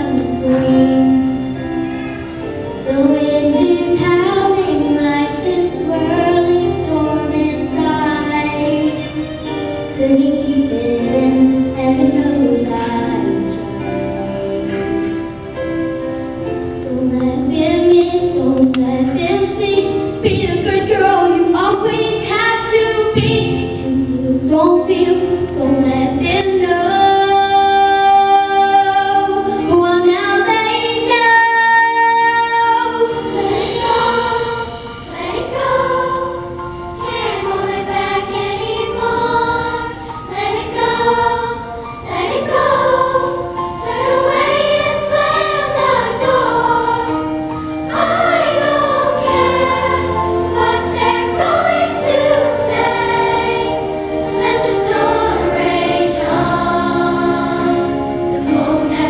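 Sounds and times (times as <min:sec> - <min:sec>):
children's choir singing: 0:00.0 - 0:59.0
girl singing into microphone: 0:16.8 - 0:33.2.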